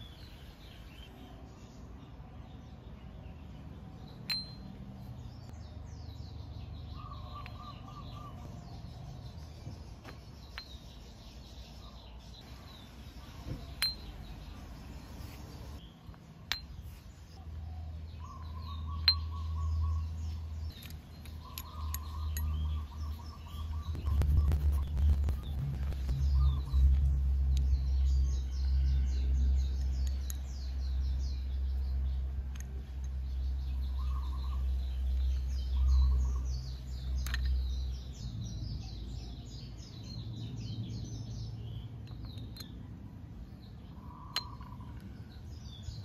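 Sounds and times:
birds chirping: 0.0s - 46.0s
low rumbling noise: 21.7s - 32.5s.

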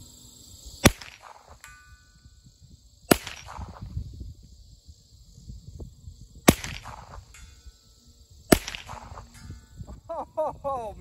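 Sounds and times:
pistol shot with echo: 0.8s - 1.6s, 3.1s - 3.9s, 6.5s - 7.3s, 8.5s - 9.2s.

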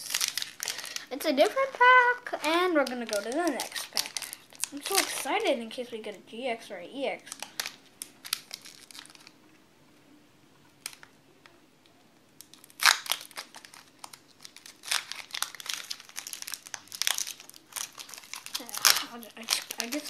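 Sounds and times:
foil wrapper crinkling: 0.0s - 5.5s, 7.3s - 9.4s, 12.4s - 20.0s.

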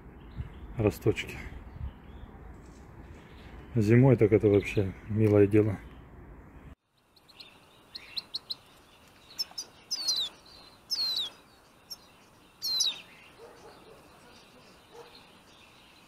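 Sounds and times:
songbirds chirping: 0.0s - 16.0s
high downward-sliding bird calls: 7.0s - 16.0s.

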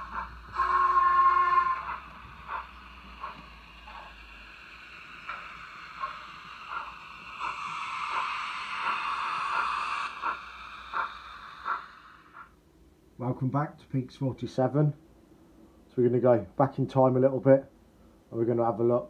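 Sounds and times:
model train motor whirr: 0.0s - 12.4s
track clicks: 1.8s - 12.5s.

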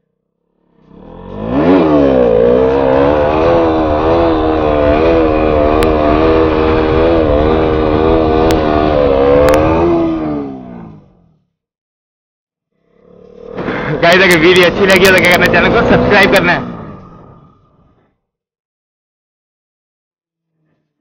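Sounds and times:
motorcycle engine revving: 0.5s - 11.6s, 12.8s - 17.7s.

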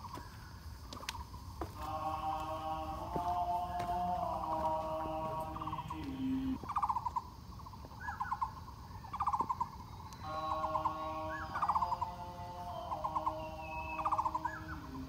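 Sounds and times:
birds steady held tones: 0.0s - 15.0s
birds stuttering trills: 0.0s - 15.0s
bird rising and falling notes: 1.8s - 6.6s, 10.2s - 15.0s.

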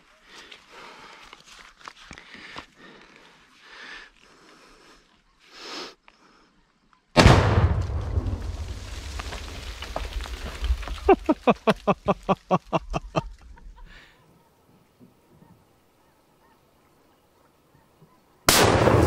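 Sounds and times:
loud explosion blast: 7.2s - 9.3s, 18.5s - 19.0s.

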